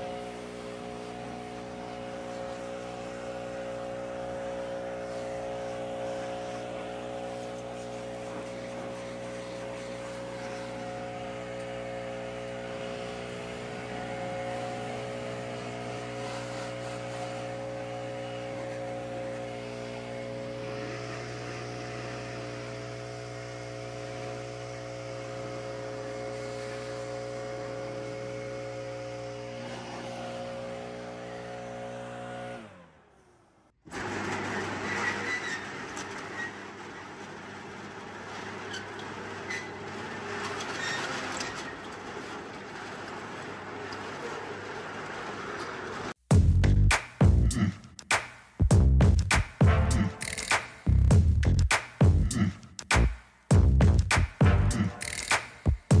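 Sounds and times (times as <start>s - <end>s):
engine humming steadily: 0.0s - 33.6s, 48.7s - 56.0s.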